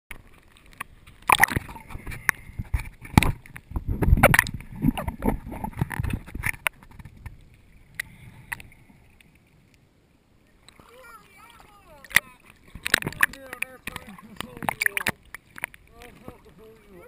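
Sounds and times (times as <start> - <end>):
water splashing and gurgling: 0.1 - 17.0.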